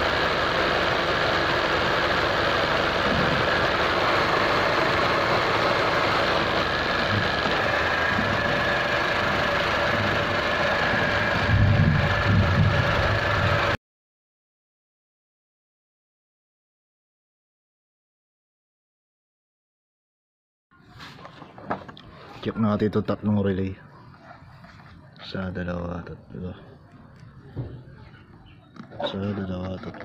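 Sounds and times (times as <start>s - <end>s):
car engine idling: 0.0s - 13.8s.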